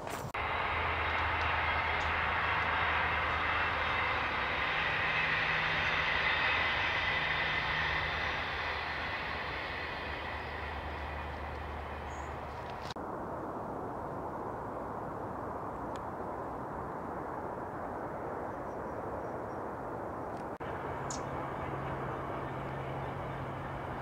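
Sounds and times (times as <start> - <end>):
train rail noise: 0.0 - 13.0, 20.4 - 24.0
diesel train engine drone: 0.0 - 13.4, 20.1 - 24.0.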